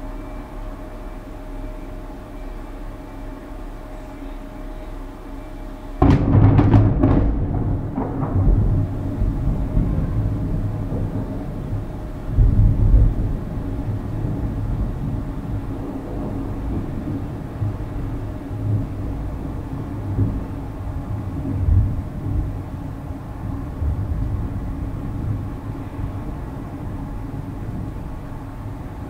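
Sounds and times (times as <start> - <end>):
thunder rumbling: 6.0 - 29.0.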